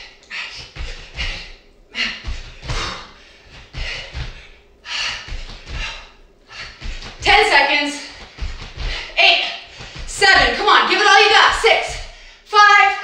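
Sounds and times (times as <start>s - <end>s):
feet thudding on wooden floor: 0.6s - 1.6s, 2.2s - 10.7s.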